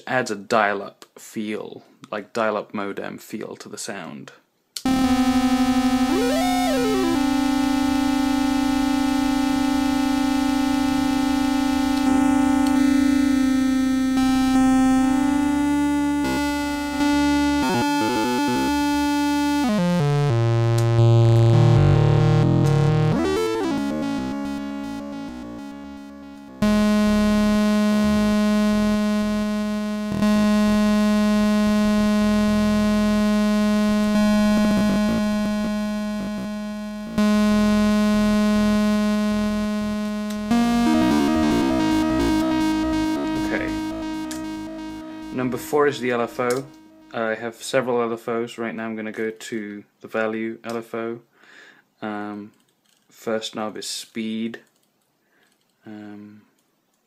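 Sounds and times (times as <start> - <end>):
synthesizer long held notes: 4.9 - 47.3.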